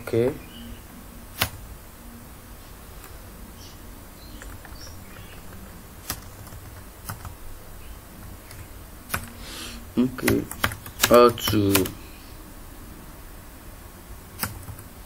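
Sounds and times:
low steady hum: 0:00.0 - 0:15.0
keyboard key presses: 0:10.2 - 0:12.0.

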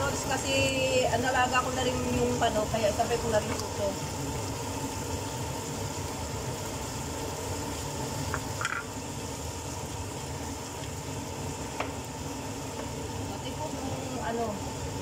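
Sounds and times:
food sizzling in a frying pan: 0:00.0 - 0:15.0.

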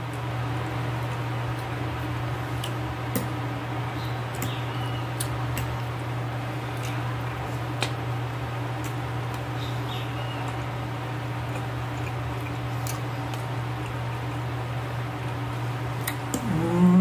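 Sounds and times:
steady low hum: 0:00.0 - 0:17.0
chewing: 0:11.4 - 0:14.5.

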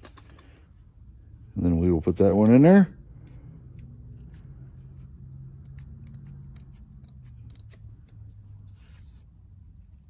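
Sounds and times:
micrometer ratchet clicking: 0:05.6 - 0:07.9.

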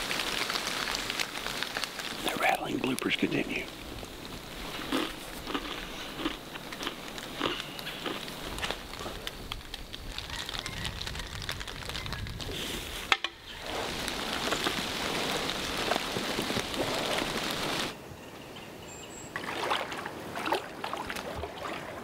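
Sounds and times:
boots wading through water: 0:19.4 - 0:22.0.

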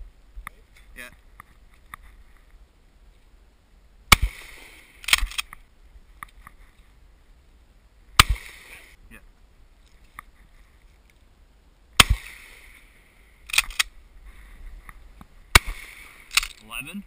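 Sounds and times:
shotgun shots: 0:04.1 - 0:05.5, 0:08.2 - 0:08.9, 0:12.0 - 0:12.8, 0:15.5 - 0:16.6.

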